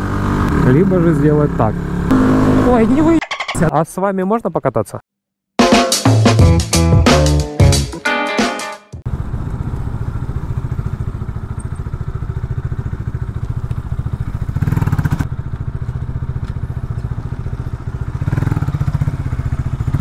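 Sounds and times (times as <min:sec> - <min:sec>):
motorcycle engine running: 0:00.0 - 0:03.4, 0:09.1 - 0:20.0.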